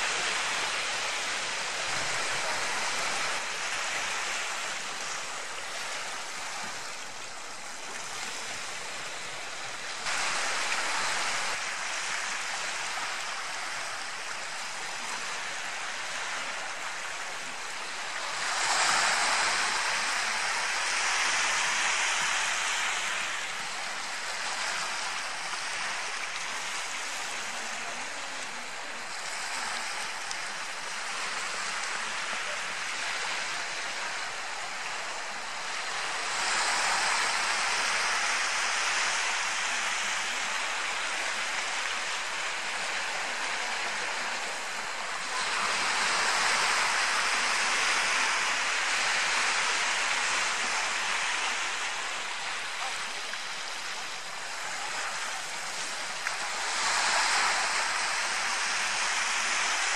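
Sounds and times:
surf washing on shoreline: 0.0s - 59.9s.

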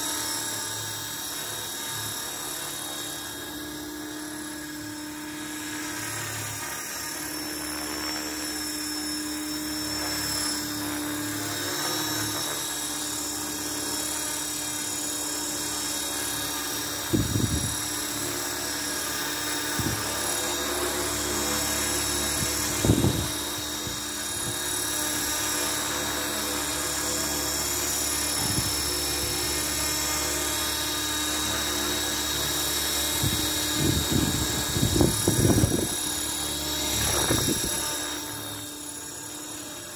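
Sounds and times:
high-pitched motor whine: 0.0s - 39.9s
rotor blades whirring: 0.0s - 39.9s.

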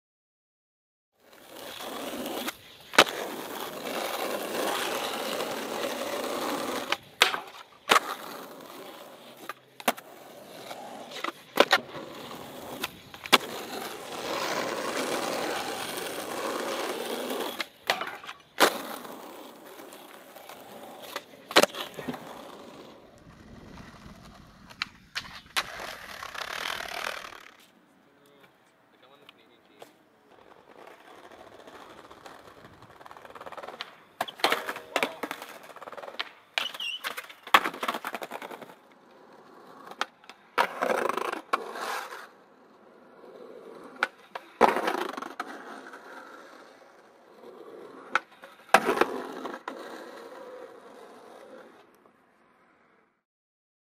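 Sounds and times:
skateboard wheels rolling on pavement: 1.2s - 53.2s
skateboard clacks: 1.4s - 27.7s, 29.2s - 52.1s.

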